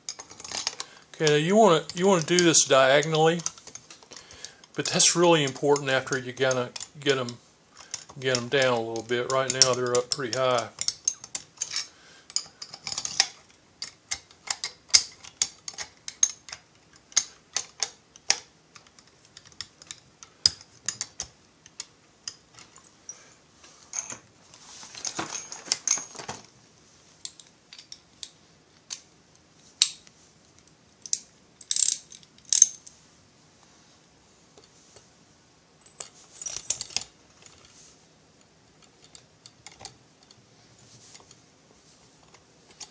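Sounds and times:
screws clicking turned by hand: 3.4 - 22.4, 31.0 - 32.9.

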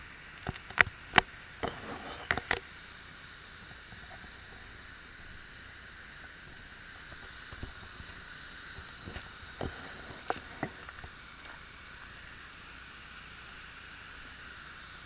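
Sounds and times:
waterfall rushing into pool: 0.0 - 15.0
footsteps on gravel: 6.9 - 12.1.

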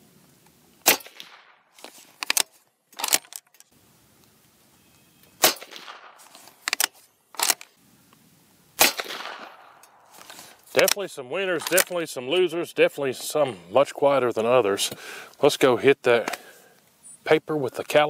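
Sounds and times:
suppressed rifle shots: 0.8 - 1.6, 5.4 - 7.6, 8.8 - 10.1
rifle bolt metallic clacks: 2.2 - 3.6, 6.6 - 7.7, 11.6 - 12.0.

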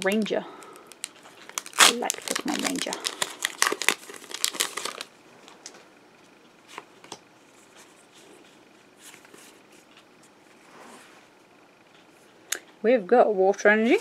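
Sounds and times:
foil wrapper crinkling and tearing: 0.0 - 5.8.

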